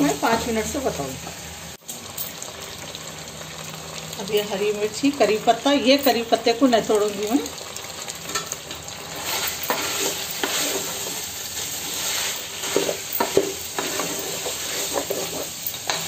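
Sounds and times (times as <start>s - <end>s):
chicken sizzling in oil: 0.0s - 16.0s
wooden spatula scraping a pot: 9.2s - 16.0s.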